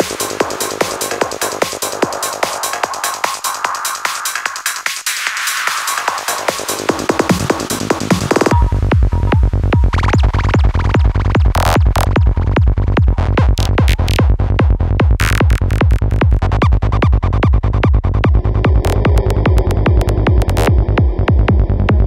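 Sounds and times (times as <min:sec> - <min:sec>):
heavy bass: 0:00.0 - 0:04.1, 0:05.8 - 0:22.0
electronic dance music: 0:00.0 - 0:12.4, 0:15.2 - 0:17.6.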